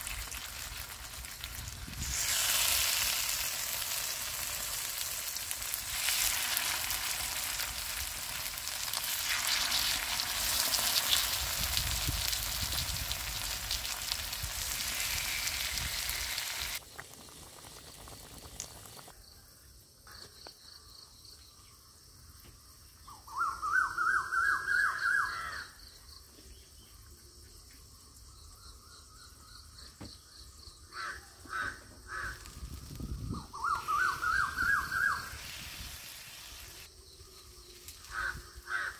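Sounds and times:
fish sizzling in oil: 0.0 - 19.1, 32.3 - 36.9
bird calling rising notes: 23.1 - 25.8, 33.3 - 35.5.

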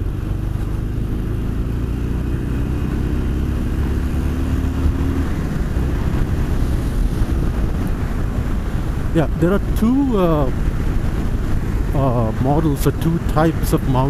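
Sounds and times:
motorcycle engine accelerating: 0.0 - 9.8
wind noise: 0.0 - 14.0.

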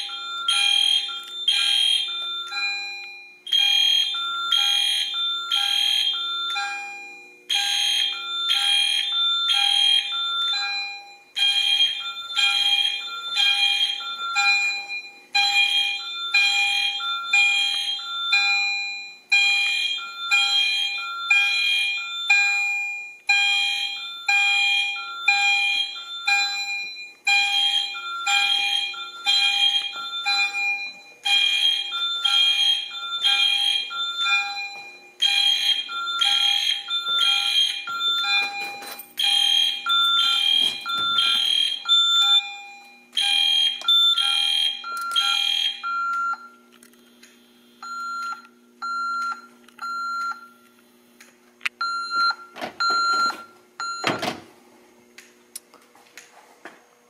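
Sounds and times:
keypad beeps: 47.8 - 50.5, 51.8 - 54.2.

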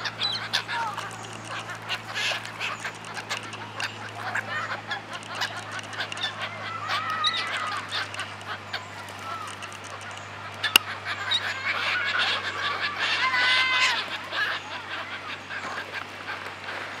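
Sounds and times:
gulls calling: 0.0 - 17.0
water splashes: 0.0 - 17.0.

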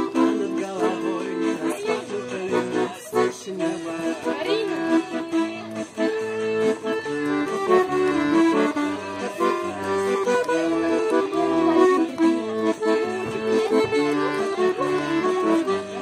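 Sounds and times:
piano accordion playing: 0.0 - 16.0.

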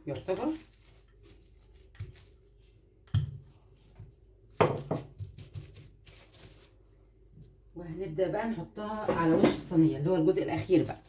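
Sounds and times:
plastic sheet rustling: 0.0 - 2.8, 3.5 - 7.0, 10.3 - 11.0.

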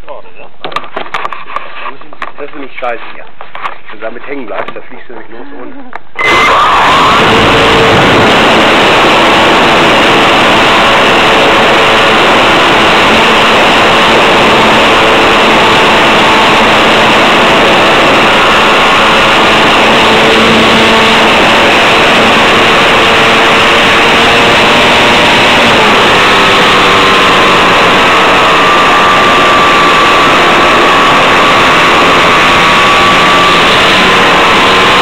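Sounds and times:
rushing air: 6.2 - 20.1
model airplane motor buzzing: 6.2 - 35.0.

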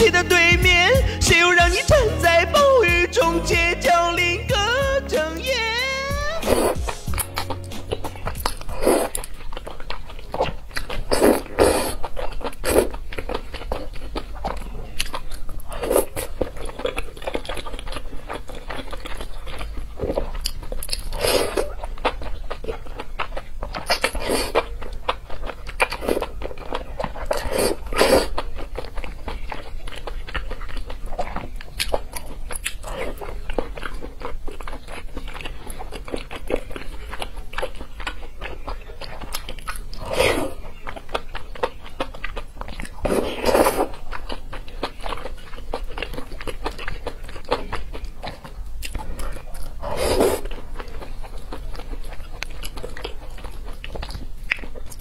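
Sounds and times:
wet chewing and smacking: 6.2 - 55.0
slurping noodles: 6.3 - 22.4, 23.8 - 24.7, 25.7 - 30.9, 39.2 - 40.6, 42.7 - 44.1, 48.9 - 50.5.

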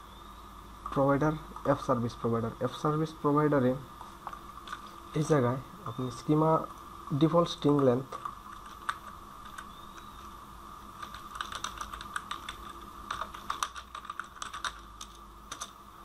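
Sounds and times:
computer keyboard typing: 7.7 - 10.1, 11.0 - 15.8.

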